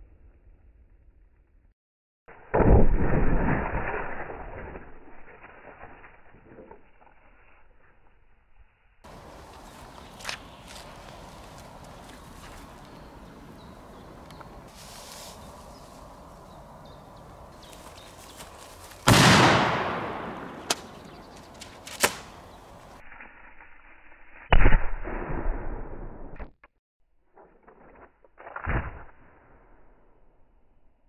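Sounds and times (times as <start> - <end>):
firecracker explosions: 19.0 - 22.4
short sharp cracks: 19.0 - 22.4.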